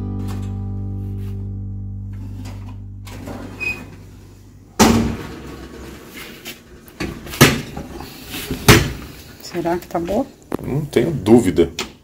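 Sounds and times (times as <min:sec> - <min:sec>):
strummed guitar chord: 0:00.0 - 0:03.3.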